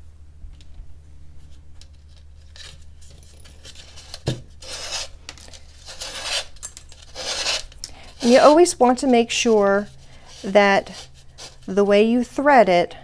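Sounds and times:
leather lace rasping through gourd: 5.8 - 11.8.

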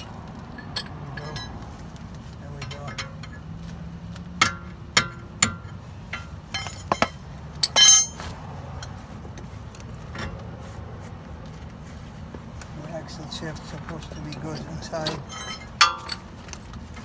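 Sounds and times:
metal tools clinking: 0.0 - 3.5, 4.4 - 9.0, 13.4 - 16.7.

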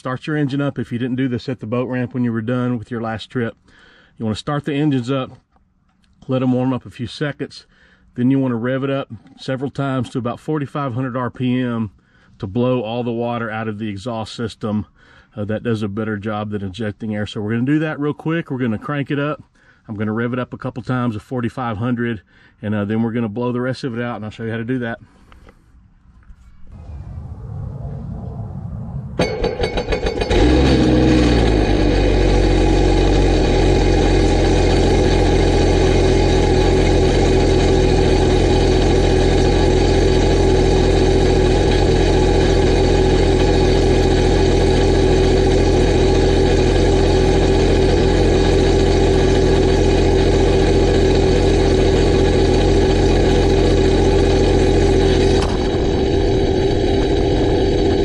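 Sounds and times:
jet-boat engine idling: 29.2 - 58.0
starter motor cranking: 29.2 - 58.0.

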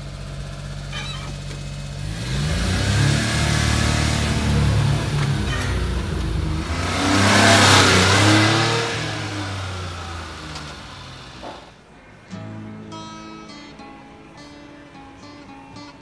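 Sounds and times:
small truck driving past: 0.0 - 11.8
guitar music: 2.8 - 11.3, 12.2 - 16.0.

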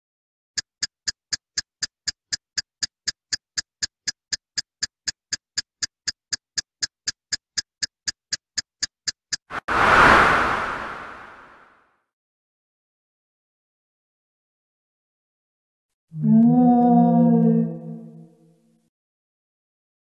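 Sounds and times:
clock ticking: 0.6 - 9.6.

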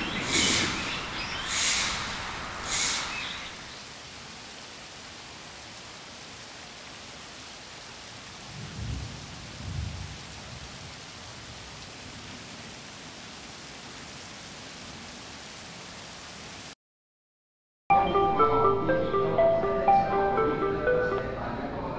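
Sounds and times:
steady rain: 0.0 - 16.8
distant thunder rumbles: 8.4 - 11.0.

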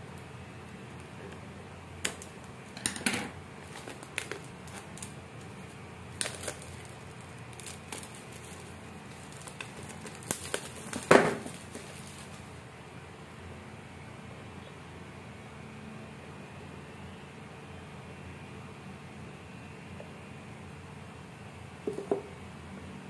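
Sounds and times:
plastic film crackling: 0.6 - 2.8, 3.5 - 12.6
scissors snipping plastic: 3.6 - 5.5, 6.2 - 12.4.

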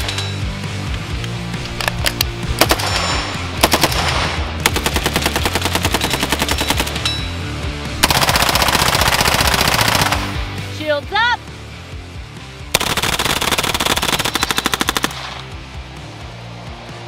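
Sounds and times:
background music: 0.0 - 17.0
rifle gunfire bursts: 2.6 - 7.0, 8.0 - 10.5, 12.7 - 15.6
submachine gun burst: 12.8 - 15.4.

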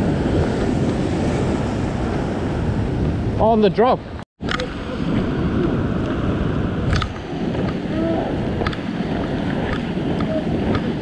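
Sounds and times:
ocean swell breaking on rocks: 0.0 - 11.0
wind buffeting microphone: 0.0 - 11.0.

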